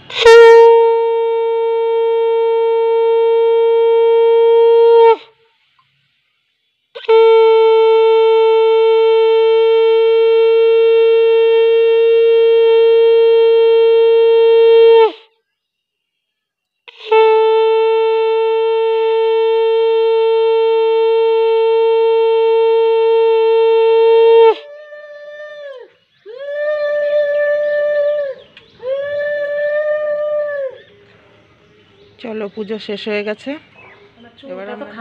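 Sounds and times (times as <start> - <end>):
conch shell blasts: 0.0 - 5.2, 7.0 - 15.2, 16.9 - 24.6.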